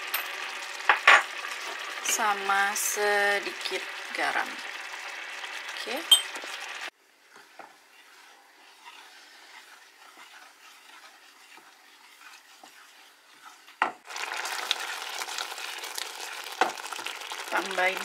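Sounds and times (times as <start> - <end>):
wooden spoon scraping pot: 7.2 - 18.0.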